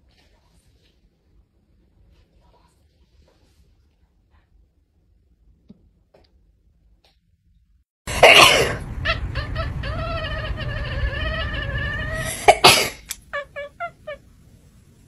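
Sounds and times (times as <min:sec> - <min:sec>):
cat yowling and meowing: 0:08.8 - 0:14.2.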